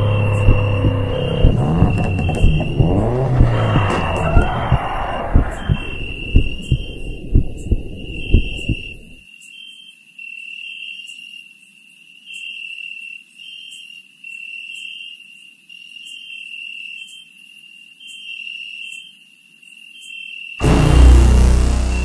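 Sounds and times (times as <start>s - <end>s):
crickets chirping: 0.0s - 9.2s
faint low hum: 0.0s - 9.2s.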